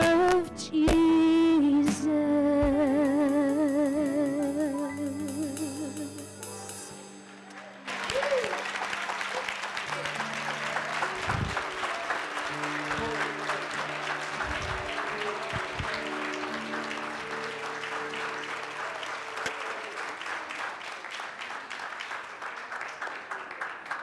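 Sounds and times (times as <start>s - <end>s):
congregation applauding: 7.2s - 24.0s
sustained music chords: 9.9s - 19.4s.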